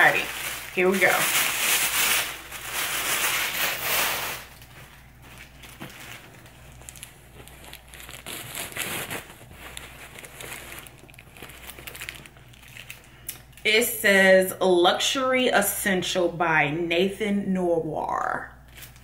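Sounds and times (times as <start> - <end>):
fabric bag rustling: 0.0 - 13.1
tissue paper crumpling: 0.0 - 13.3.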